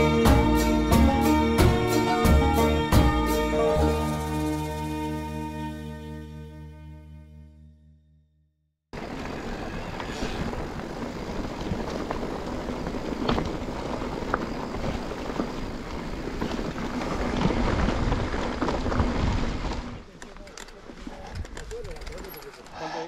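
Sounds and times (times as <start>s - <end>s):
bike rattling: 3.8s - 5.2s, 9.0s - 23.0s
bike tyres on rough trail: 9.0s - 23.0s.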